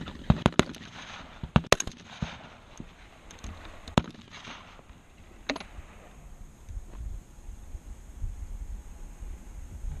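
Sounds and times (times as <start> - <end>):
rifle shots: 0.0 - 5.8.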